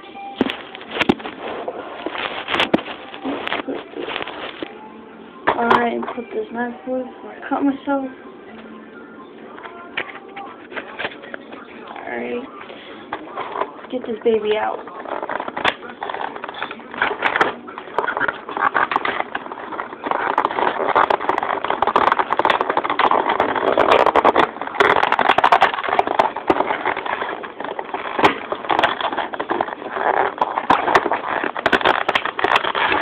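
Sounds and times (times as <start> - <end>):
packaging rustling and scraping: 0.3 - 4.8, 9.4 - 33.0.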